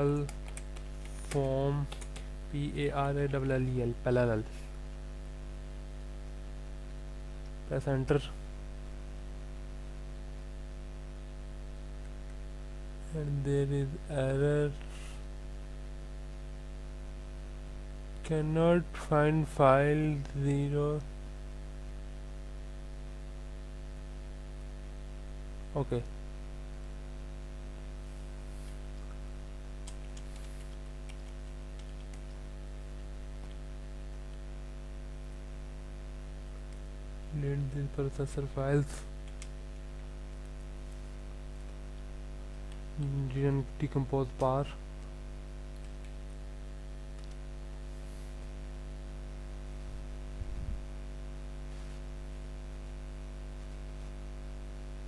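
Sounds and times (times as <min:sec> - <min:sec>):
electrical mains hum: 0:00.0 - 0:55.0
computer keyboard clicks: 0:00.2 - 0:02.3, 0:29.8 - 0:32.4, 0:39.2 - 0:39.6, 0:47.2 - 0:47.4.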